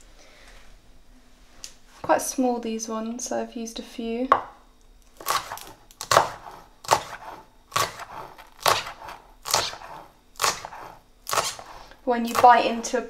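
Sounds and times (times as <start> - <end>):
knife chopping on wooden board: 5.2 - 12.8.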